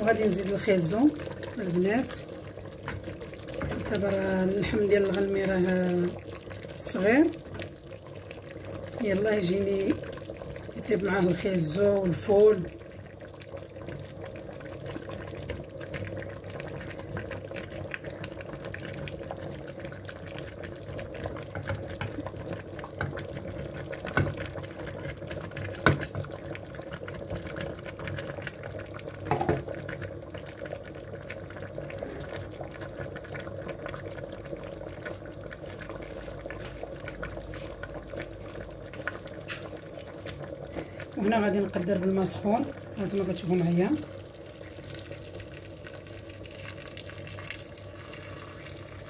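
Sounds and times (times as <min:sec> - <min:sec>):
stew bubbling in a pot: 0:00.0 - 0:49.0
knocks in a pot: 0:29.2 - 0:29.7.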